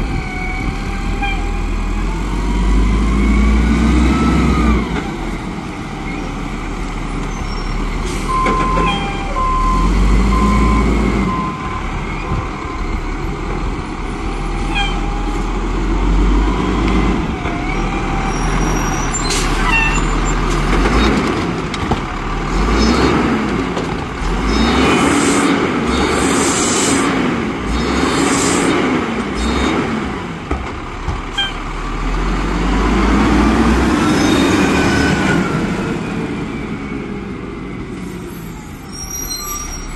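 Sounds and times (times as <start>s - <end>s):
diesel engine revving: 0.0s - 39.9s
beeps: 8.3s - 12.8s.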